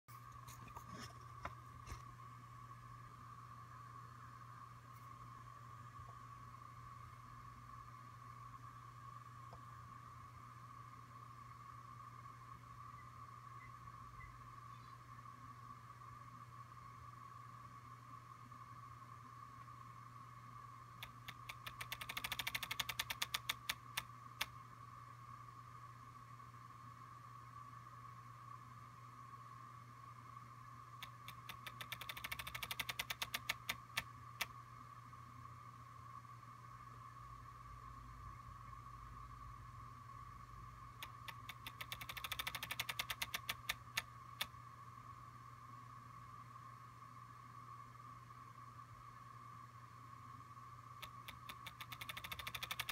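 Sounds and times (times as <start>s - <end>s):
faint whine and hum: 0.0s - 52.9s
sharp ticks into rapid rattle: 21.0s - 24.6s, 31.0s - 34.6s, 41.0s - 44.5s, 51.0s - 52.9s
small haptic clicks: 21.0s - 24.6s, 31.0s - 34.6s, 41.0s - 44.6s, 51.0s - 52.9s.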